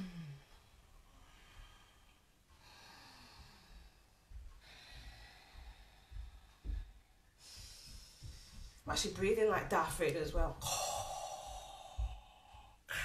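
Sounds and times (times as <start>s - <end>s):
deep hissy breathing: 0.0s - 8.9s, 10.6s - 13.0s
low thuds: 3.3s - 13.0s.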